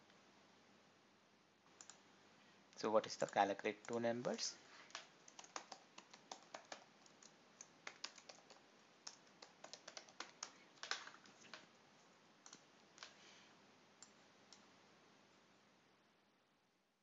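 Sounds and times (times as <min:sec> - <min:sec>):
faint typing on keyboard: 0:01.7 - 0:02.1, 0:02.7 - 0:13.3, 0:14.0 - 0:14.7.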